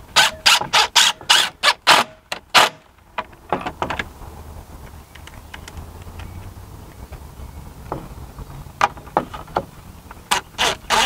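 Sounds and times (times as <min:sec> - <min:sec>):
cordless driver driving screws: 0:10.3 - 0:11.0.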